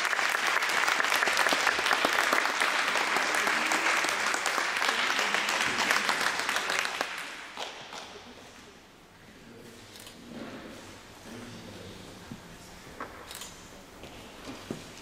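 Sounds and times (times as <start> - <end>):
people applauding: 0.0 - 8.5.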